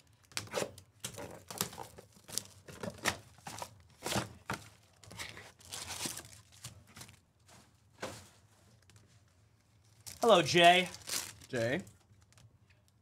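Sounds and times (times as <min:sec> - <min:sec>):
wrapper tearing and crinkling: 0:05.0 - 0:07.2, 0:09.8 - 0:12.5.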